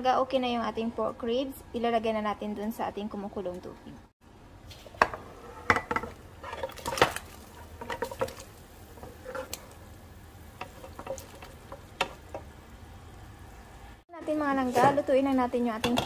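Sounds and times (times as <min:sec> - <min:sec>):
water boiling: 0:04.6 - 0:14.0
pieces dropping into water: 0:06.6 - 0:08.5.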